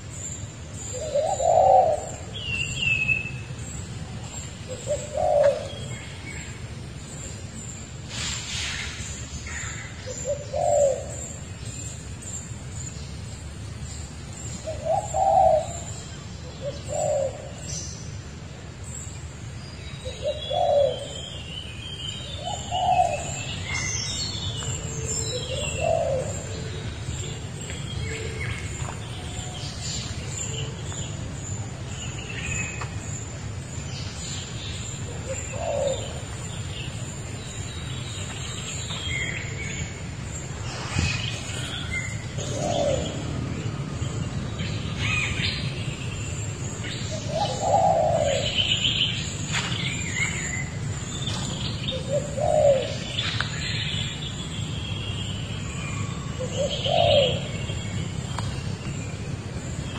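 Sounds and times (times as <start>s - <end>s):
birds chirping and twittering: 0.0s - 59.9s
low bird coos: 0.8s - 6.6s, 8.1s - 11.5s, 14.6s - 17.7s, 20.0s - 21.4s, 22.3s - 33.2s, 34.1s - 37.2s, 38.2s - 54.2s, 55.7s - 58.6s.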